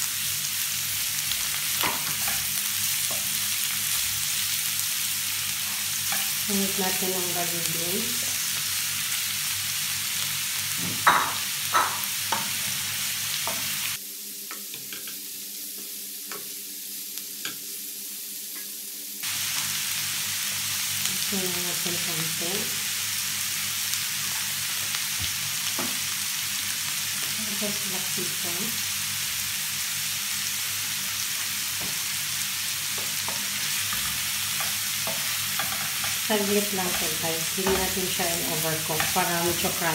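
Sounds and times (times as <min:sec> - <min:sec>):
vegetables sizzling in a pan: 0:00.0 - 0:39.9.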